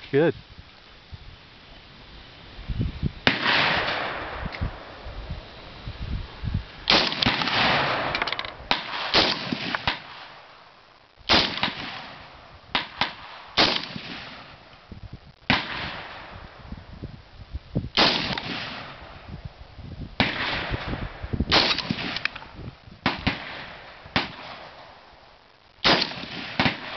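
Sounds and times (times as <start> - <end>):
rifle shots with echo: 3.2 - 5.0, 6.9 - 10.6, 11.3 - 14.6, 15.5 - 16.5, 18.0 - 19.3, 20.2 - 25.0, 25.8 - 26.9.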